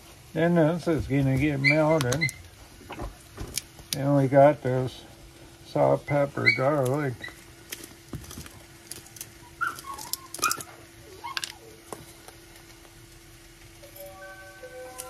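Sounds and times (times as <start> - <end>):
steady low hum: 0.0 - 15.0
dog whining: 1.6 - 2.4, 6.1 - 7.4, 9.3 - 11.9.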